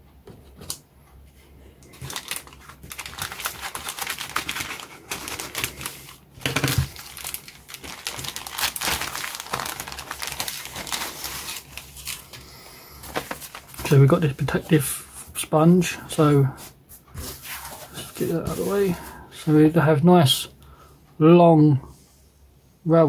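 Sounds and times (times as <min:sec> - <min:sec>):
plastic bag crinkling: 0:01.9 - 0:14.9.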